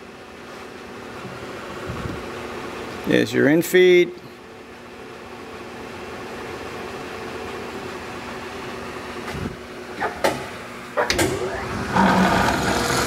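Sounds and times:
lathe humming: 11.4s - 13.0s.

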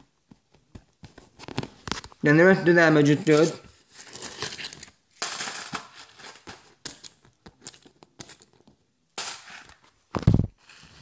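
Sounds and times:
coins clinking: 3.2s - 9.8s.

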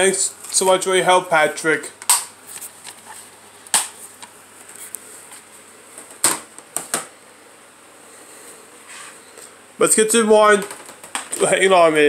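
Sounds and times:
faint steady hum: 0.0s - 12.0s
plastic cases clicking and knocking: 10.6s - 11.4s.

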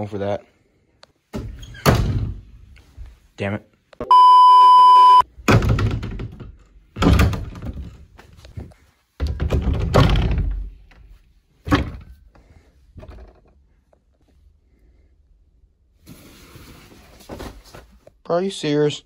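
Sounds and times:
closet doors thunking: 1.3s - 2.5s, 5.4s - 8.2s, 9.2s - 10.9s, 11.6s - 12.2s
test-pattern beep: 4.0s - 5.2s.

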